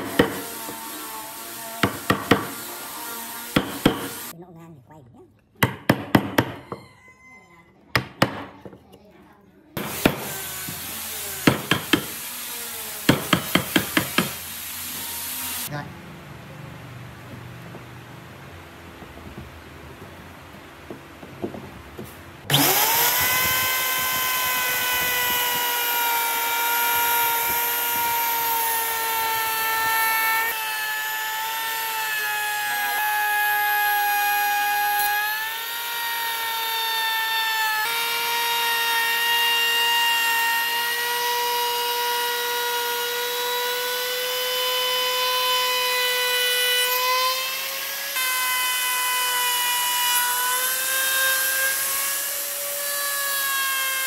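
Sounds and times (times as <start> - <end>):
electric router whining: 22.5 - 54.0.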